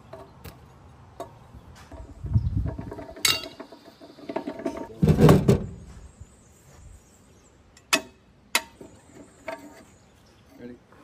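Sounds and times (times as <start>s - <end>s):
steel tools clinking on metal: 3.2s - 3.7s.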